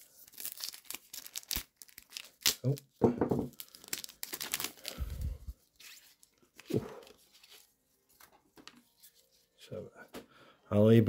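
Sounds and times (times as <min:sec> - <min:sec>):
wrapper tearing and crinkling: 0:00.0 - 0:07.6.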